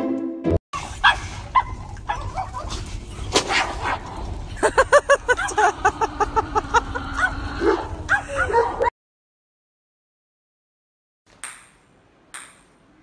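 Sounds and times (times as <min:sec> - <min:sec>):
dogs yelping and barking: 0:00.8 - 0:08.9
high-pitched dog yaps: 0:00.9 - 0:02.8.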